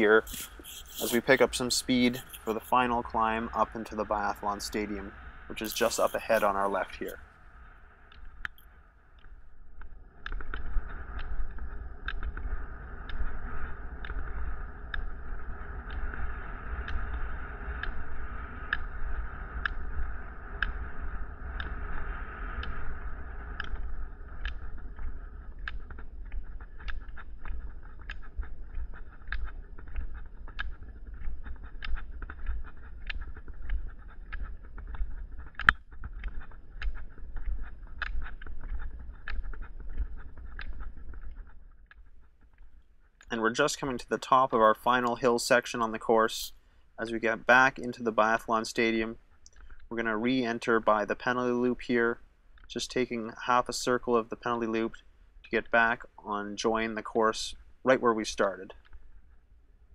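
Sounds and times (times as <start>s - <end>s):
ski pole tips clicking on pavement: 0.0s - 4.7s, 5.5s - 7.2s, 8.1s - 43.6s.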